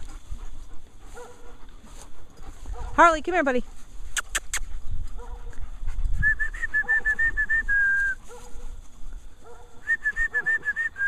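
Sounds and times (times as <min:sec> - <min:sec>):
person whistling: 0:06.2 - 0:08.2, 0:09.8 - 0:11.0.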